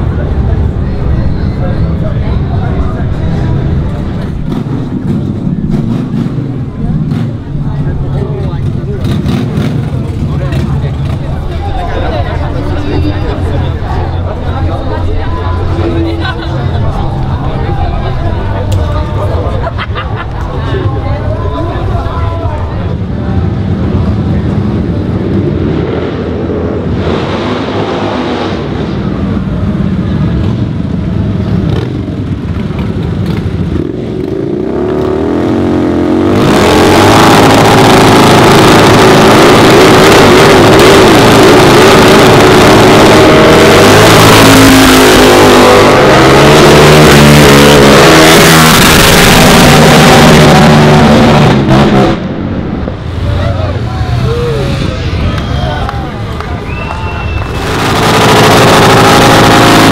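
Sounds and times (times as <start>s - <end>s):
motorcycle engine at high revs: 4.4s - 11.4s, 31.2s - 52.1s, 57.5s - 59.9s
motorcycles revving past: 31.4s - 52.3s, 57.4s - 59.9s.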